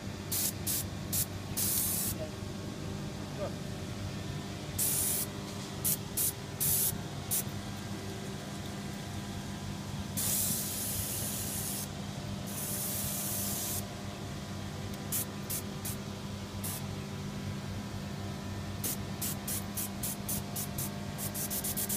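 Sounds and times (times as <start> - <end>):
low machine hum: 0.0 - 21.9
dry ice blasting hiss: 10.2 - 11.9, 12.5 - 13.8.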